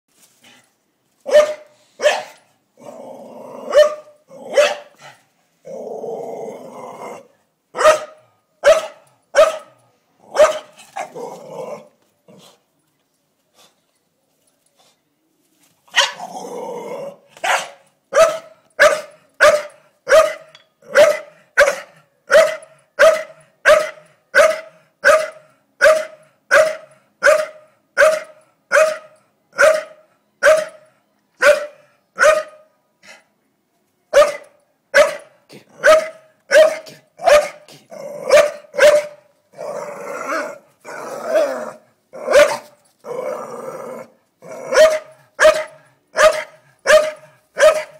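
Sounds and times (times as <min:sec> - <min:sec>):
dog barking: 0:01.3 - 0:02.4, 0:03.7 - 0:04.9, 0:07.8 - 0:10.8, 0:16.0 - 0:16.2, 0:17.4 - 0:30.8, 0:31.4 - 0:32.7, 0:34.1 - 0:37.7, 0:38.3 - 0:39.2, 0:42.3 - 0:42.8, 0:44.7 - 0:47.9
dog growling: 0:37.7 - 0:38.3, 0:39.5 - 0:42.4, 0:43.0 - 0:44.8.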